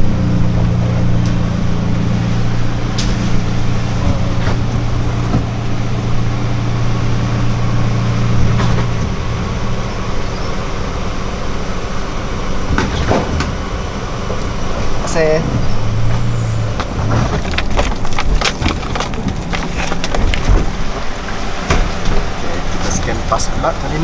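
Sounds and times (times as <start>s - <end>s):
vehicle engine idling: 0.0s - 24.0s.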